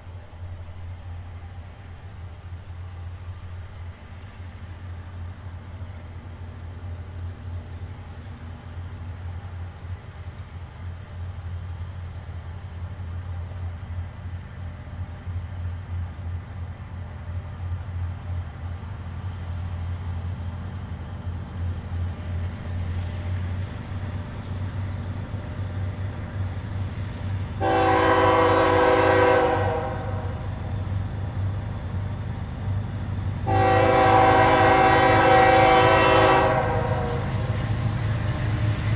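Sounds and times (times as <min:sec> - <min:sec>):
crickets chirping: 0:00.0 - 0:38.9
diesel locomotive engine rumble: 0:00.0 - 0:38.9
locomotive air horn chord: 0:27.6 - 0:30.5, 0:33.4 - 0:37.6.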